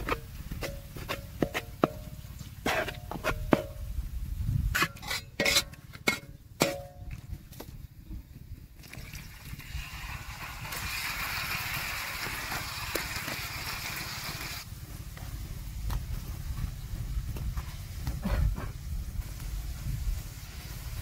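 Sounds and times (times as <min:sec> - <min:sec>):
water sizzling in hot oil: 0:09.6 - 0:14.7.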